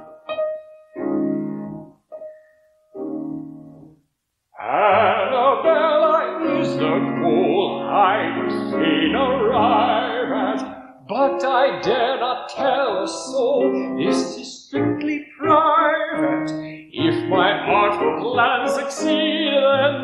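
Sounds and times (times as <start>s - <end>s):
piano chords: 0.0s - 20.0s
man singing operatically: 4.6s - 20.0s.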